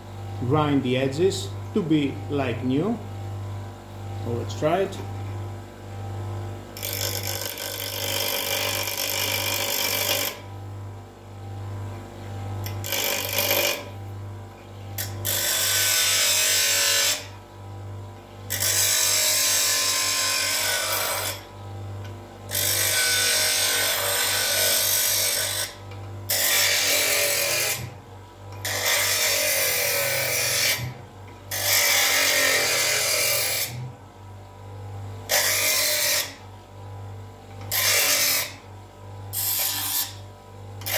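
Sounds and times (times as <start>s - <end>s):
bench grinder motor humming: 6.7s - 10.6s, 12.4s - 34.4s, 35.1s - 36.8s, 37.4s - 40.9s
metal against grinding wheel: 6.8s - 10.4s, 12.7s - 13.9s.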